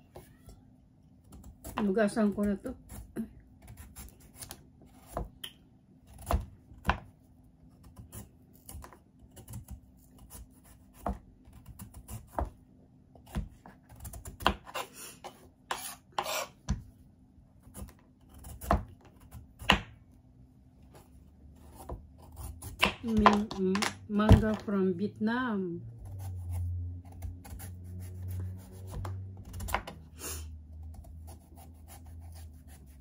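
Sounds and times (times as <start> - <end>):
knife scraping cuts: 13.9 - 16.7.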